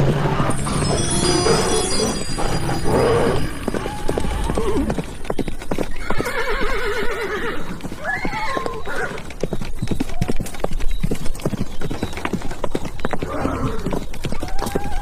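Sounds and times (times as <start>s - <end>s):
fast clatter of hooves: 0.0s - 15.0s
horse neighing: 0.5s - 5.2s, 6.0s - 9.2s.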